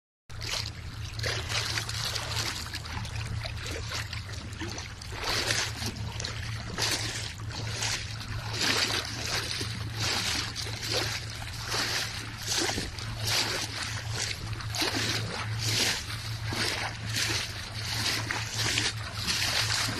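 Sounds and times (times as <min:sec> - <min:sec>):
shallow seawater splashing: 0:00.3 - 0:19.9
steady low hum: 0:00.4 - 0:19.9.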